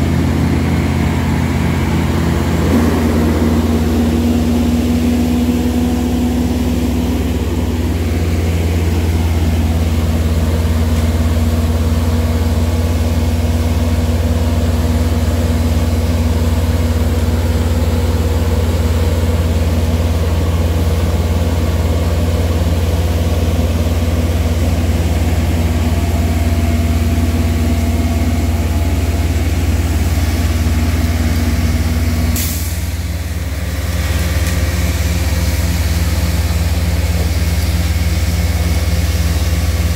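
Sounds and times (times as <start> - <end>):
vacuum system hum: 0.0 - 12.6
diesel engine drone: 0.0 - 39.9.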